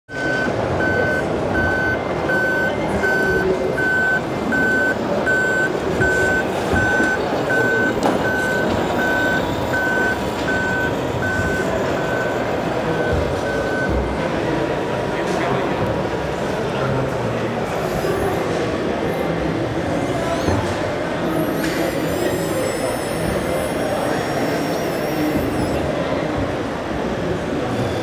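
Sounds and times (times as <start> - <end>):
reversing beeper: 0.1 - 14.0
noisy background: 0.1 - 28.0.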